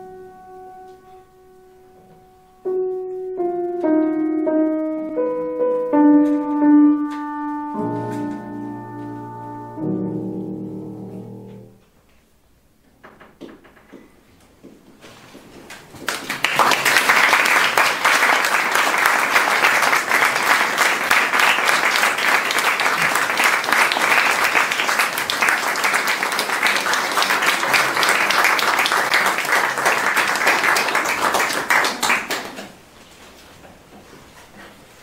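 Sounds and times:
audience applauding: 15.7s - 32.9s.

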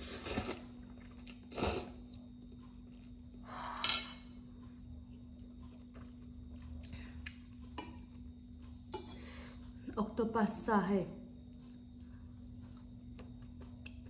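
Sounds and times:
steady low hum: 0.0s - 14.0s
chewing: 5.1s - 8.9s, 11.5s - 14.0s.

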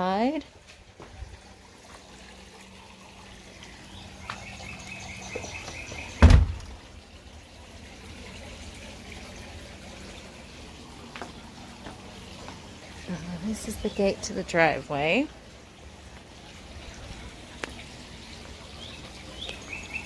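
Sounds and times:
loud thump: 6.2s - 6.7s.

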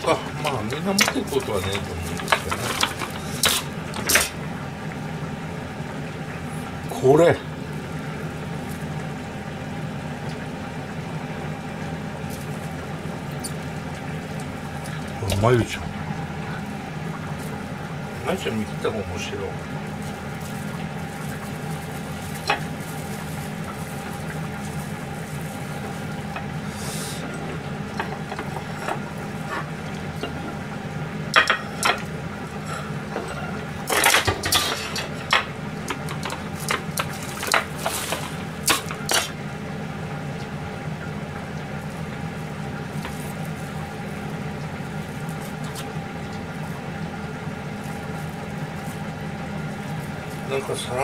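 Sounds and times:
steady hum: 0.0s - 51.0s
plastic wrap crinkling: 19.8s - 26.7s, 41.8s - 46.9s, 47.6s - 50.8s.

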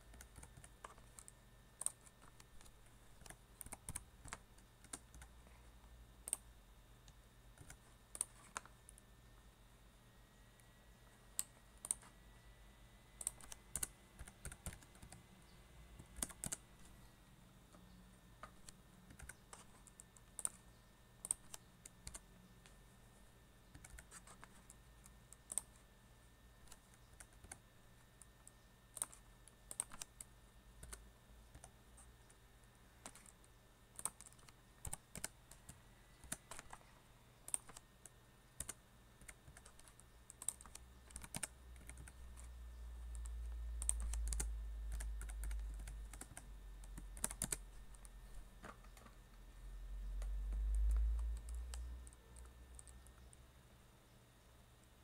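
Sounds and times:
typing on a keyboard: 0.0s - 5.3s, 6.2s - 6.5s, 7.6s - 9.0s, 11.4s - 12.1s, 13.2s - 15.2s, 16.0s - 16.9s, 18.4s - 22.2s, 23.7s - 25.8s, 28.9s - 31.8s, 33.0s - 36.8s, 37.5s - 42.5s, 43.1s - 48.1s, 50.1s - 53.4s.

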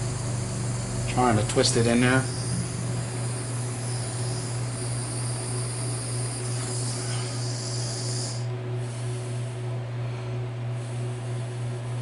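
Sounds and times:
low hum: 0.0s - 8.5s
torch flame hissing: 0.0s - 9.7s.

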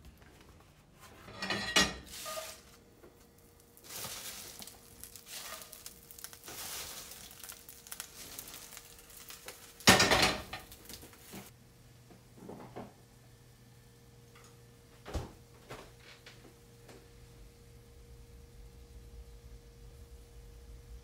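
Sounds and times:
spinach leaves rustling in skillet: 1.9s - 11.5s
skillet clatter: 9.8s - 10.8s.

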